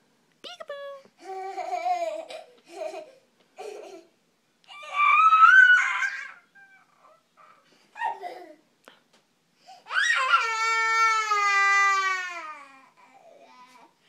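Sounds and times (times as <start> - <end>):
toddler squealing: 4.7 - 8.3.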